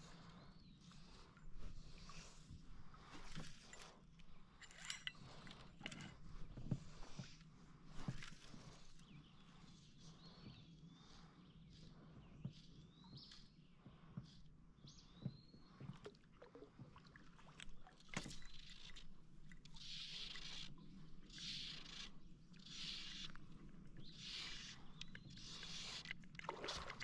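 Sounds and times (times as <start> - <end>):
bird calling with sliding whistles: 19.8 - 23.4, 24.0 - 26.1.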